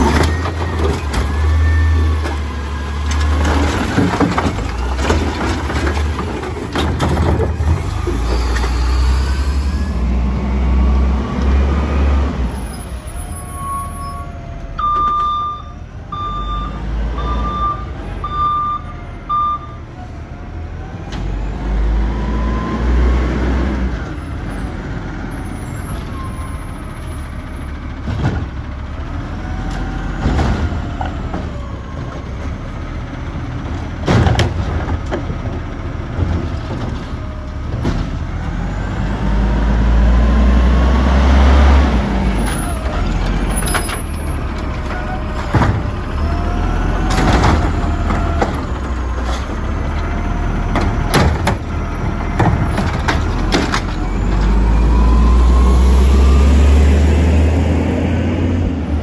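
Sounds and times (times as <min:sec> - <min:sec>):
sharp knocks of carts: 0:00.0 - 0:08.8, 0:33.5 - 0:38.7, 0:42.3 - 0:46.3, 0:47.0 - 0:54.6
truck engine revving: 0:00.0 - 0:14.5, 0:20.6 - 0:59.0
reversing beeper: 0:00.1 - 0:02.2, 0:12.5 - 0:20.1, 0:54.1 - 0:57.4.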